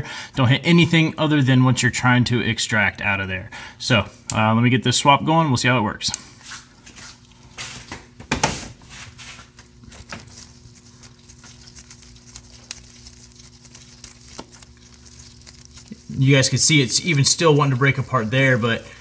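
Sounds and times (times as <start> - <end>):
faint steady hum: 0.0 - 19.0
gloved hands rustling: 8.8 - 19.0.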